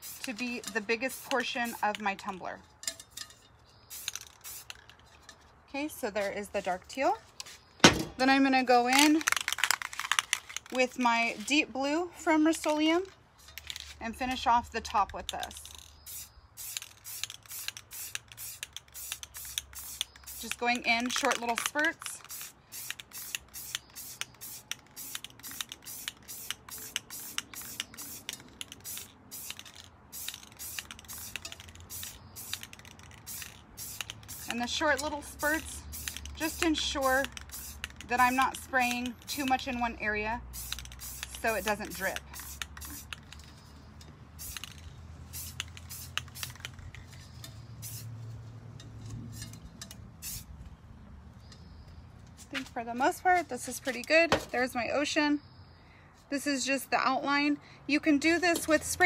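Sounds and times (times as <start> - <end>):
spray paint can hissing: 0.0 - 2.3, 3.8 - 5.1, 8.8 - 11.5, 15.1 - 43.8, 44.4 - 48.2, 49.3 - 50.5.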